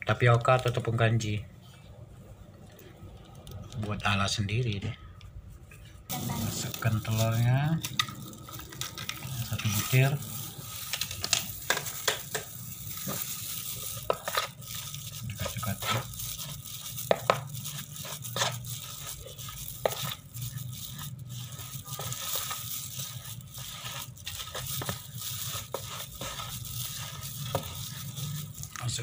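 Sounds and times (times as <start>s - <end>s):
plastic spatula scraping metal pan: 21.9s - 28.8s.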